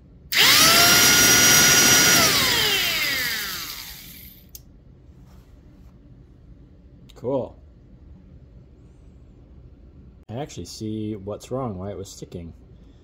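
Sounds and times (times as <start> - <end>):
jigsaw motor whine: 0.3 - 4.4.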